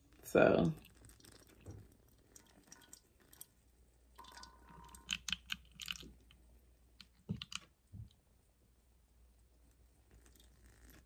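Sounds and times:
water pouring into bowl: 0.0 - 6.4, 10.1 - 11.0
faint clicks and crackles: 0.0 - 8.2, 9.4 - 11.0.

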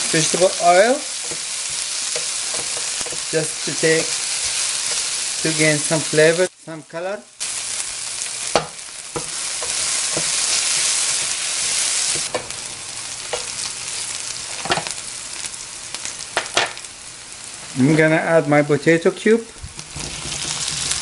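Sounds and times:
onion sizzling in oil: 0.0 - 21.0
wooden spoon knocking on pan: 8.5 - 10.4.

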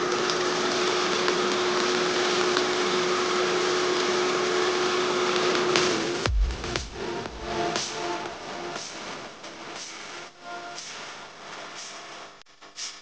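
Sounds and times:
food sizzling in a pan: 0.0 - 6.2
steady hum: 5.5 - 12.4
low thump: 6.3 - 7.4.

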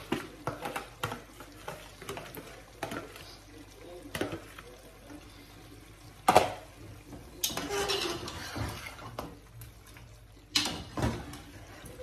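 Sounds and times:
spoon scraping pot: 7.4 - 9.4.

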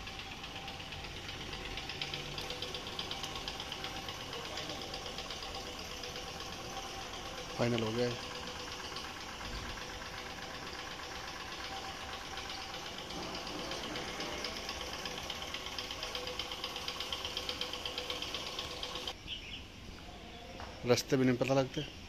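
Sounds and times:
fast regular ticking: 0.0 - 19.2
motor running: 0.0 - 19.2.

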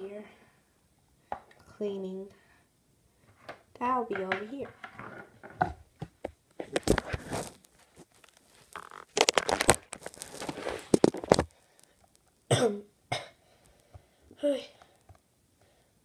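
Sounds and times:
person coughing: 12.5 - 13.4.

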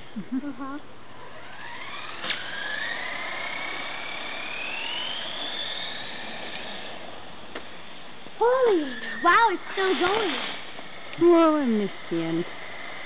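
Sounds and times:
thin rising whistle: 1.2 - 7.1.

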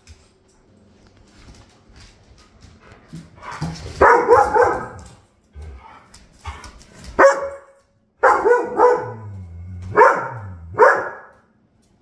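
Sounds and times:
dogs barking: 4.0 - 5.1, 7.2 - 11.4
dog growling: 9.0 - 10.8.

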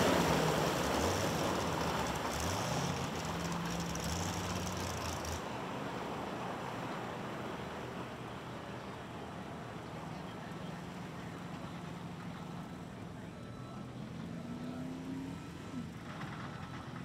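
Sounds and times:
truck engine revving: 0.0 - 5.4, 14.2 - 17.0.

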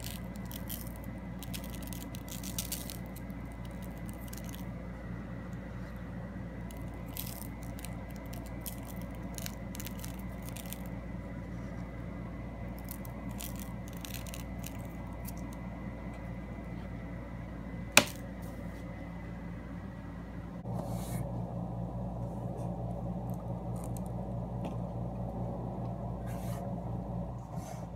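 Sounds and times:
crackles and rustles: 0.0 - 4.7, 6.6 - 12.0, 12.7 - 15.7
steady low hum: 0.0 - 27.9.

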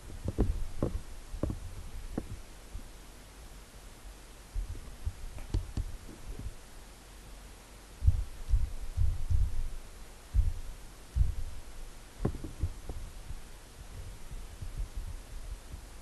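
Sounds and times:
keyboard typing thumps: 0.2 - 2.4, 12.2 - 15.8.

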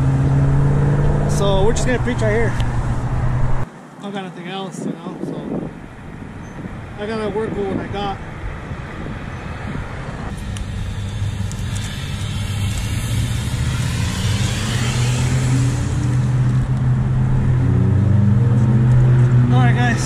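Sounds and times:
vehicle engine hum: 0.0 - 3.7, 8.2 - 20.0
road noise: 0.0 - 20.0.

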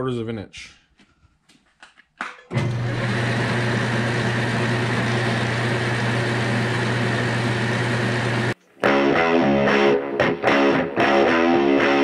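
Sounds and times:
metal lathe running: 2.5 - 8.6.

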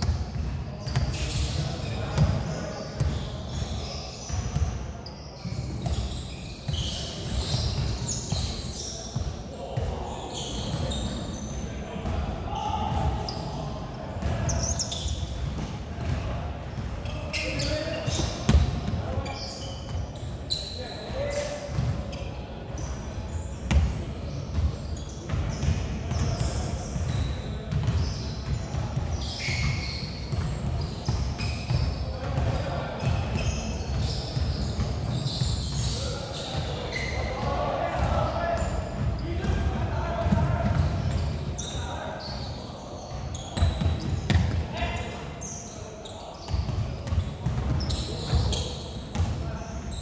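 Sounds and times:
sneakers squeaking: 0.0 - 50.0
basketballs bouncing on wooden floor: 15.4 - 16.2, 18.1 - 19.0, 43.6 - 44.6.

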